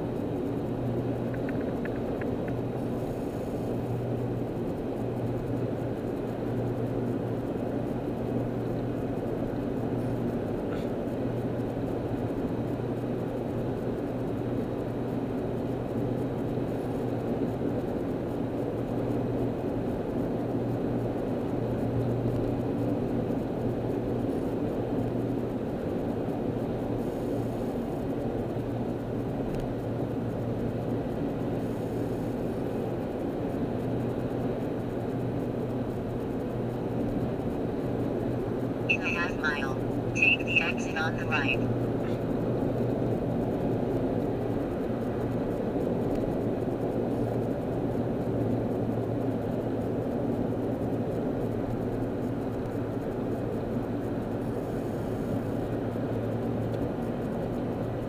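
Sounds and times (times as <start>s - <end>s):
car road and engine noise: 0.0s - 58.0s
low hum: 20.9s - 58.0s.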